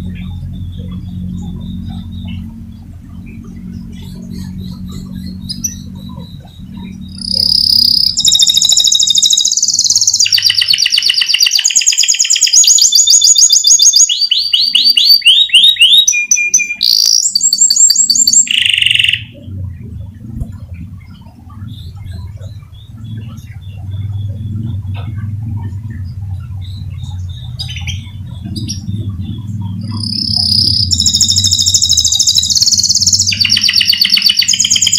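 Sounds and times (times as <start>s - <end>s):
canary singing trills: 0.0s - 34.9s
low steady hum: 0.0s - 34.9s.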